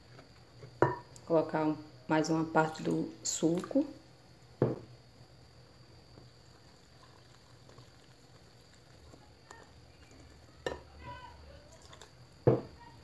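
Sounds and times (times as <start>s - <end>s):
knock: 4.6s - 4.9s, 12.5s - 12.7s.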